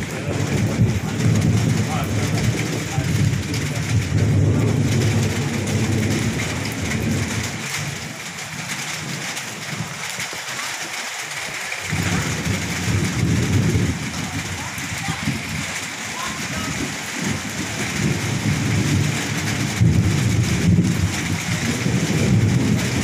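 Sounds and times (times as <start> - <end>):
thunder rumbling: 0.0 - 10.6, 11.3 - 23.0
heavy rain: 0.0 - 23.0.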